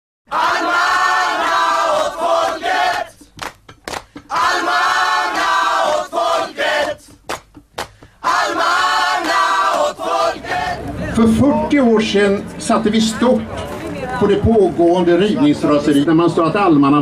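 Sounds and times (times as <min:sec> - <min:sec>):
crowd chanting: 0:00.3 - 0:03.2, 0:04.3 - 0:07.2, 0:08.2 - 0:11.7.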